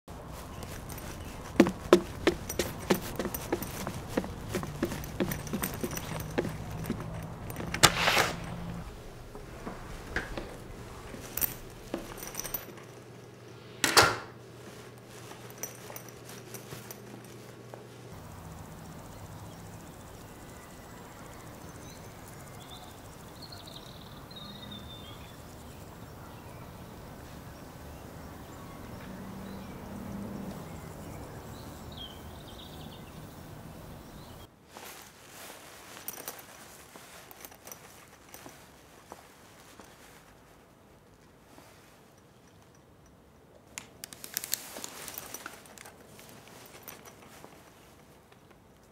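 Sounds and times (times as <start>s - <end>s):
outdoor hush: 0.1s - 28.7s
footsteps on wooden steps: 0.2s - 12.9s.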